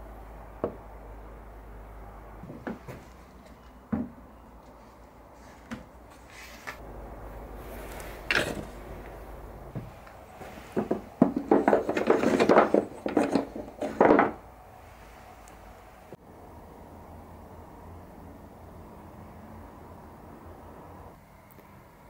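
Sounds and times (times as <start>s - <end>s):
wooden toys knocking together: 10.8s - 14.4s.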